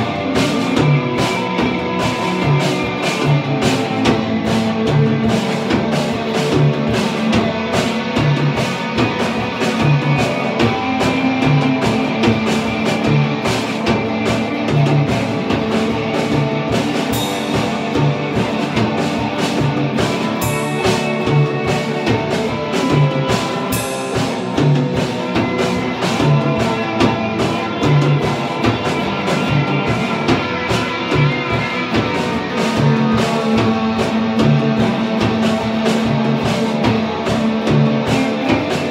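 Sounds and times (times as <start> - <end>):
drum beat: 0.0 - 38.9
electric guitars: 0.0 - 38.9.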